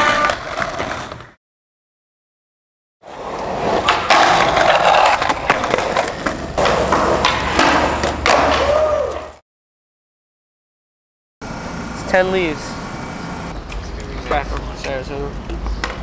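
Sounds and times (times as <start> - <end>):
skateboard clacking: 0.0 - 1.3, 3.2 - 9.3, 13.6 - 16.0
skateboard wheels rolling on concrete: 0.0 - 1.4, 3.0 - 9.4, 11.4 - 16.0.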